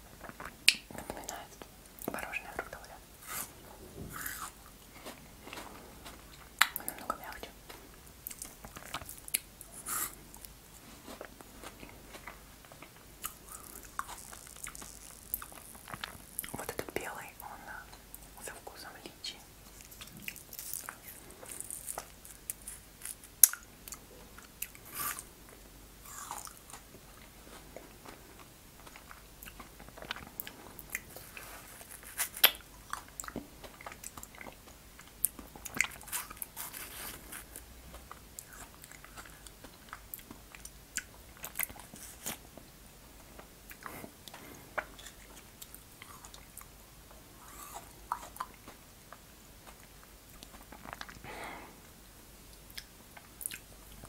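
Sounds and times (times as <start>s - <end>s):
ice crunching between teeth: 11.1s - 16.7s, 19.9s - 23.7s.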